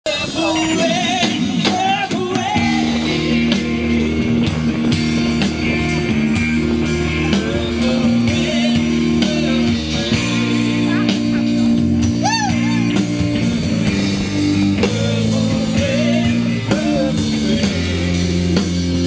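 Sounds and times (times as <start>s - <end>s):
live rock band playing: 0.0s - 19.0s
held low notes: 2.6s - 19.0s.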